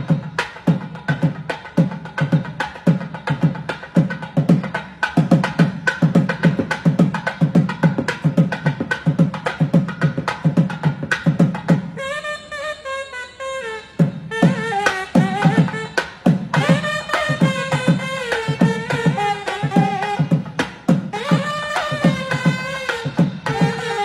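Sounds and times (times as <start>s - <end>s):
fast drumming: 0.0s - 11.9s, 14.4s - 24.0s
reed horn melody: 12.0s - 24.0s.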